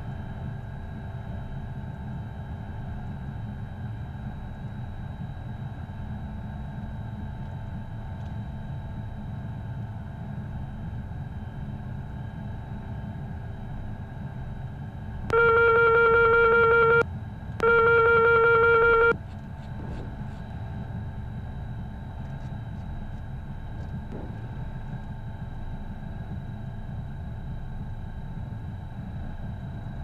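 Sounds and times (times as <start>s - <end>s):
jet engines idling hum: 0.0s - 30.0s
electronic alert tones: 15.3s - 17.0s, 17.6s - 19.2s.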